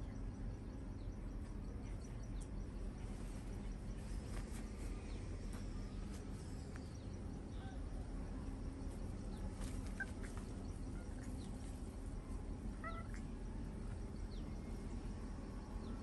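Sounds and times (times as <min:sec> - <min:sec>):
low background noise: 0:00.0 - 0:16.0
baby monkey squeaky calls: 0:12.8 - 0:13.2.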